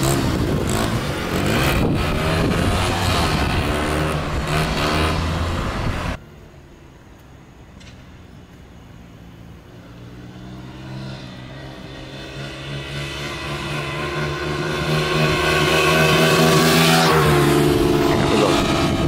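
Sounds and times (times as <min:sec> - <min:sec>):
dirt bike engine: 0:00.0 - 0:06.2, 0:09.0 - 0:19.0
car driving past: 0:09.8 - 0:19.0.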